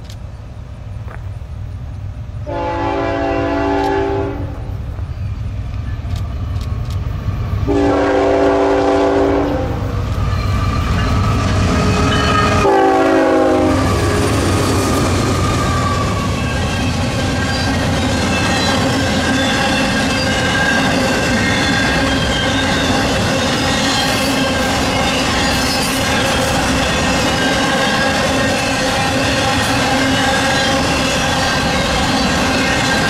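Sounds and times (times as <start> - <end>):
train wheels clicking on rails: 0.0 - 2.4, 3.7 - 33.0
low rumble of train: 0.0 - 33.0
locomotive air horn blasts: 2.4 - 4.6, 7.7 - 9.9, 12.6 - 14.3.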